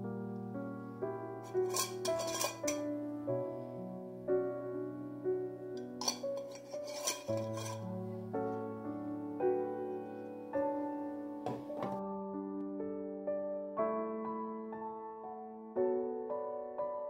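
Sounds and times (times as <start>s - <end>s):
soft solo piano music: 0.0s - 17.0s
glass jar and metal lid clinks: 1.5s - 2.8s, 5.8s - 7.8s.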